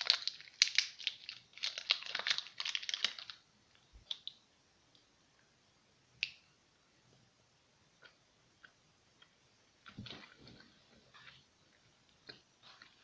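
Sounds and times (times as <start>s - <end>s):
foil wrapper crinkling: 0.0s - 3.4s.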